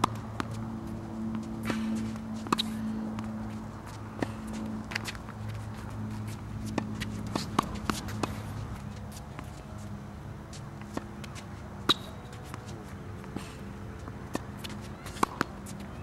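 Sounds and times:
tennis ball hitting racket: 0.0s - 9.6s, 10.5s - 16.0s
steady low hum: 0.0s - 16.0s.

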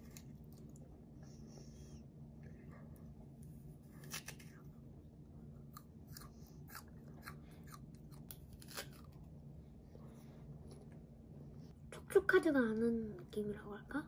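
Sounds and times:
fruit crunching when chewed: 5.5s - 9.4s.

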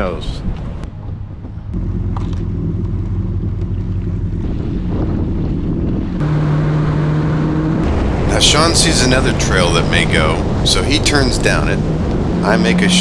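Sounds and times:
jet ski engine running: 1.0s - 10.6s.

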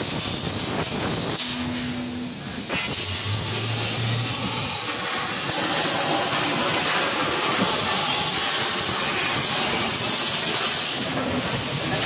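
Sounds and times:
cutting torch hissing: 0.0s - 12.0s.

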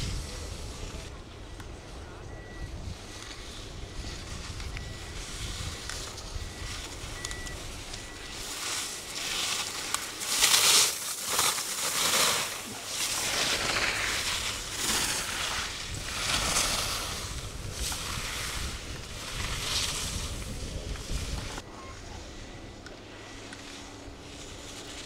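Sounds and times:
skis scraping on snow: 0.0s - 1.2s, 2.8s - 25.0s
wind buffeting microphone: 0.0s - 8.5s, 13.4s - 21.6s.

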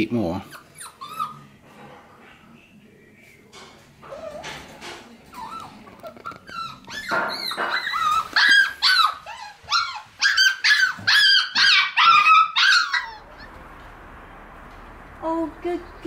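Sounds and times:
puppy whining and yapping: 0.5s - 1.4s, 5.3s - 13.2s.

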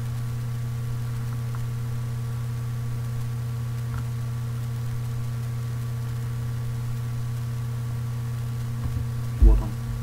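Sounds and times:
constant hiss: 0.0s - 10.0s
low electrical hum: 0.0s - 10.0s.

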